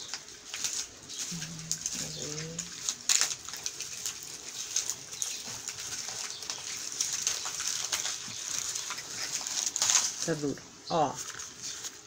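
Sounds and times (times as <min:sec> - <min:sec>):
low hum: 0:01.3 - 0:02.9.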